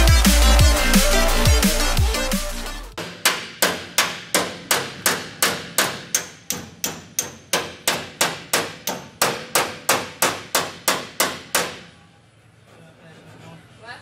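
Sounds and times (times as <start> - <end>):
hammer striking sheet steel: 3.0 - 12.0.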